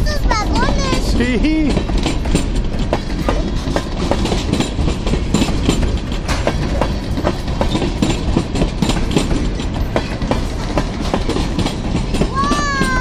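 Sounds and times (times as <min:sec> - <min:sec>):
train wheels rumbling on rails: 0:00.0 - 0:13.0
wheels clacking over rail joints: 0:00.0 - 0:13.0.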